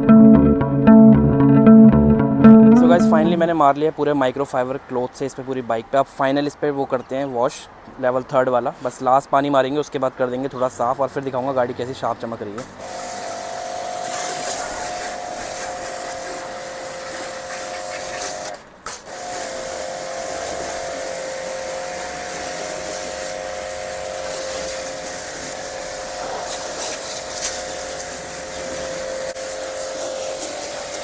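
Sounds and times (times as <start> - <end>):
water jet hissing: 12.8 - 31.0
pressure washer motor whine: 13.2 - 15.6, 19.2 - 26.2, 27.0 - 31.0.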